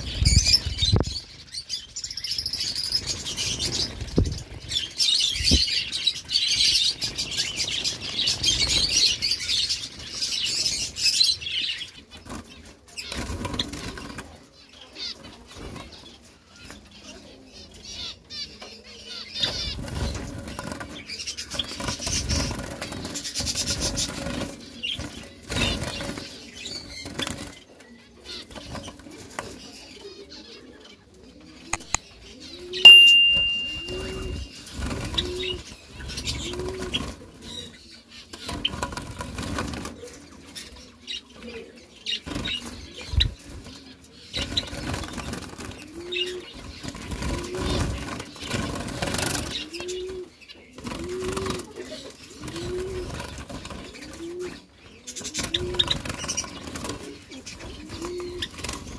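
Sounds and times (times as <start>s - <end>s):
birds fluttering wings: 12.1s - 14.4s, 19.4s - 27.7s, 33.9s - 37.6s, 38.3s - 40.8s, 42.2s - 58.9s
electronic ping: 32.9s - 34.5s.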